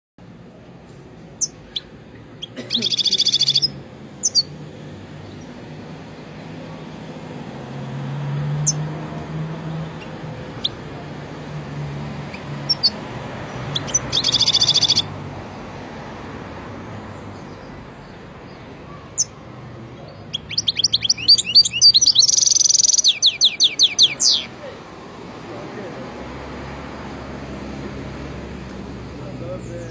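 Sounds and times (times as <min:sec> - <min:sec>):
bird singing and trilling: 0:01.3 - 0:04.6, 0:08.5 - 0:08.9, 0:09.7 - 0:11.2, 0:12.2 - 0:15.2, 0:17.1 - 0:24.6.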